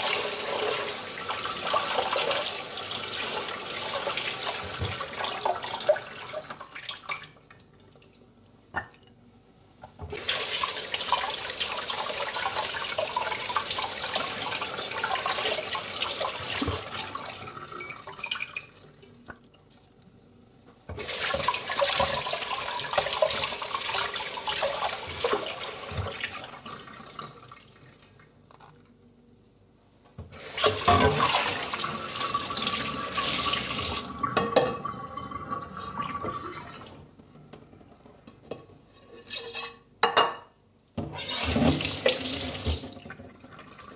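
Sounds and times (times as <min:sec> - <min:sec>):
tap water running into sink: 0:00.0 - 0:07.2, 0:10.1 - 0:18.7, 0:20.9 - 0:27.5, 0:30.4 - 0:36.6, 0:41.0 - 0:43.9.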